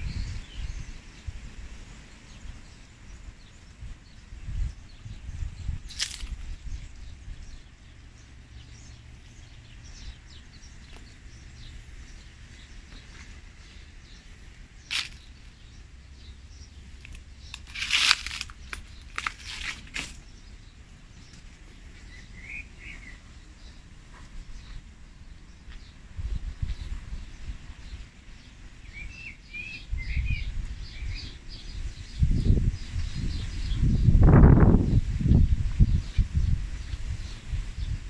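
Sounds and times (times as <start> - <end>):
wind buffeting microphone: 0.0 - 16.8, 24.4 - 38.0
sharp crunching crackling: 5.9 - 6.6, 14.8 - 15.5, 16.9 - 20.3.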